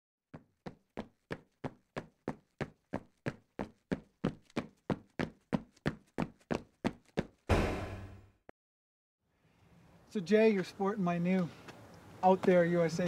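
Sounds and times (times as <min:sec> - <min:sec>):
sharp percussive hits: 0:07.5 - 0:08.3.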